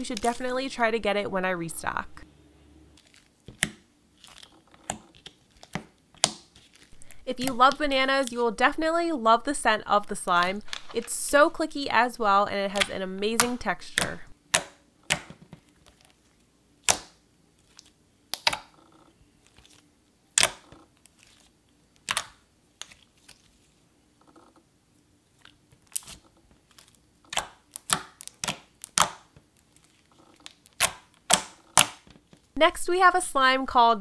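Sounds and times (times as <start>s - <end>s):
slime clicking: 22.0s - 23.0s.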